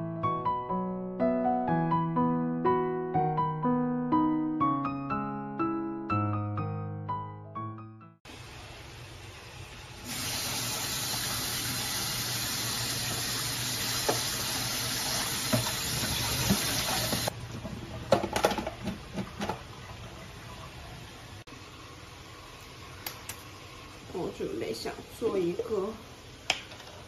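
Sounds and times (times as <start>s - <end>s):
tap running into steel sink: 13.9s - 14.4s, 15.4s - 17.3s.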